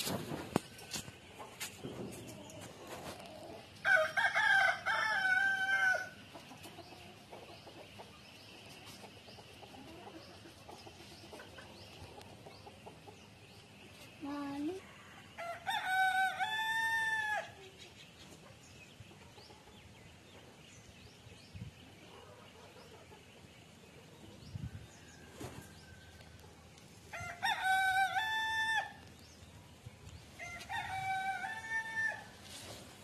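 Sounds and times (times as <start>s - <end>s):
roosters crowing: 3.8s - 6.2s, 15.0s - 17.6s, 27.1s - 29.1s, 30.4s - 32.4s.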